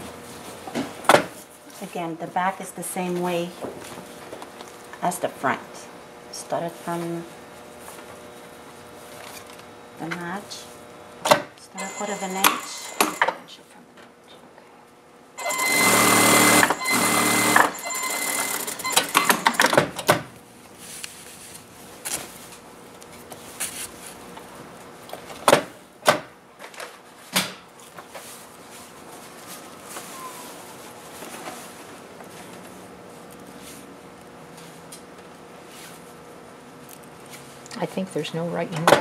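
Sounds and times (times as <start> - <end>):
industrial sewing machine stitching: 11.8 - 13.3, 15.4 - 19.8.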